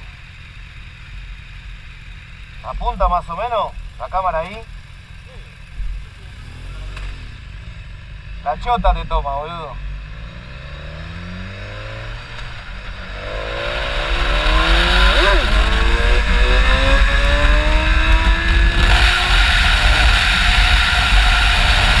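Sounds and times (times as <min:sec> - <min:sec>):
motorcycle engine accelerating: 0:00.0 - 0:22.0
wind rush: 0:13.2 - 0:22.0.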